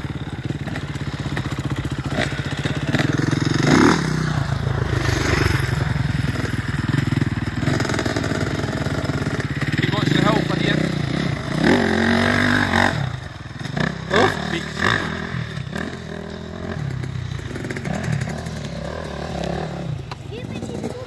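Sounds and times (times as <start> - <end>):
dirt bike engine idling: 0.0 - 21.0
dirt bike engines running: 0.0 - 21.0.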